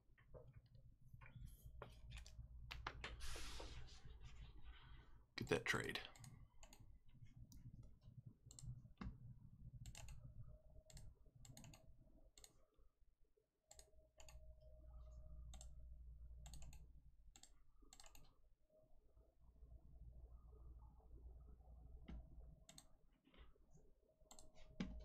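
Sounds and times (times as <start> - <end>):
faint clicks and taps: 0.1 - 3.2, 6.1 - 10.3, 22.0 - 23.7, 24.3 - 25.0
low hum: 13.9 - 18.0.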